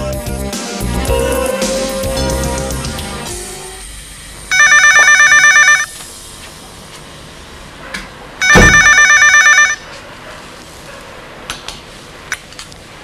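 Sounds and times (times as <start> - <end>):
telephone ringing with warbling trill: 4.5 - 5.9, 8.4 - 9.8.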